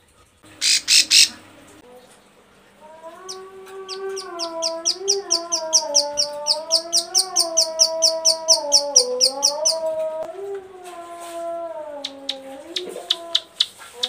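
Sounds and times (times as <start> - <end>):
bird rapid clicking call: 12.0 - 14.0.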